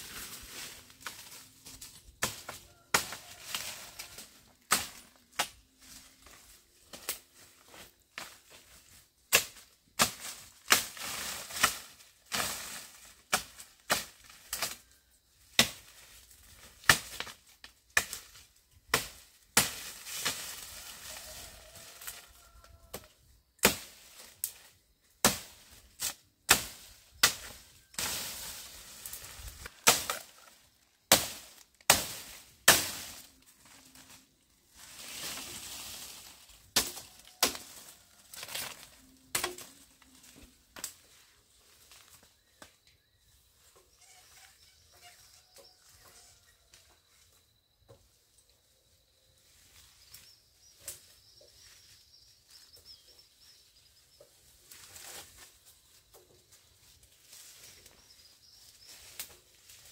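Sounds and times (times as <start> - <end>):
rustling: 27.5 - 42.3, 54.3 - 59.9.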